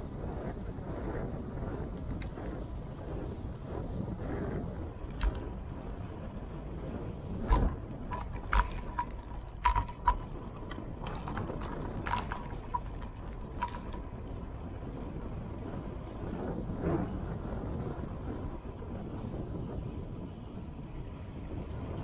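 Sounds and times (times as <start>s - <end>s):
wind and road noise rumble: 0.0s - 22.0s
sharp metallic clicks and rattles: 7.4s - 14.4s.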